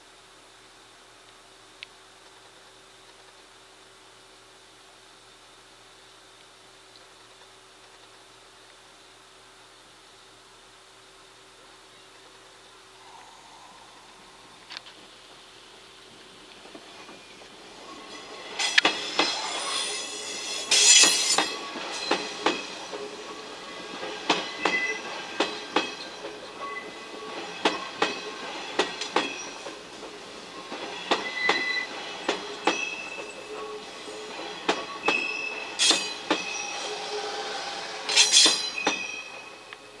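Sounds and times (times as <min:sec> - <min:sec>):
train wheels clacking over joints: 0:16.6 - 0:33.6, 0:34.4 - 0:36.8, 0:38.1 - 0:39.2
wheel squeals: 0:30.7 - 0:39.7.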